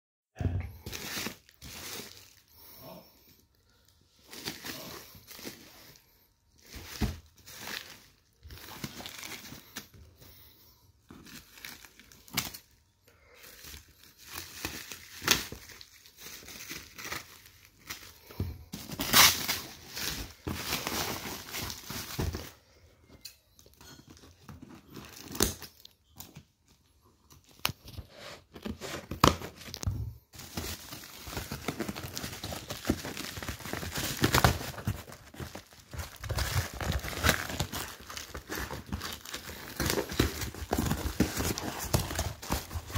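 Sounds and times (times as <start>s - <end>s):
plastic bubble wrap crinkling: 0.8s - 10.1s, 11.0s - 12.8s, 13.4s - 22.6s, 29.0s - 42.9s
tape and cardboard tearing: 19.0s - 19.7s.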